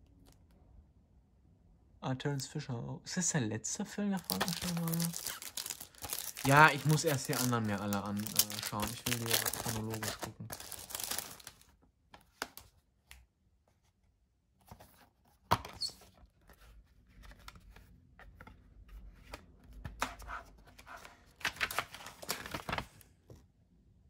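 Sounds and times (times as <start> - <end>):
paper and plastic rustling: 4.2 - 12.7, 14.6 - 23.4.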